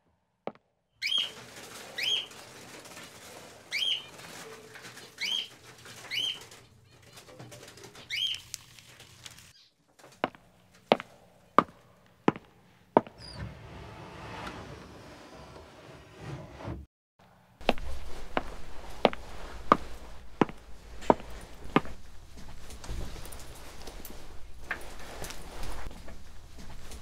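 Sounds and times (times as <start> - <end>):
songbird chirping: 1.0 - 1.4, 3.7 - 4.2, 5.0 - 8.8
footsteps on a floor: 10.1 - 13.2, 17.6 - 27.0.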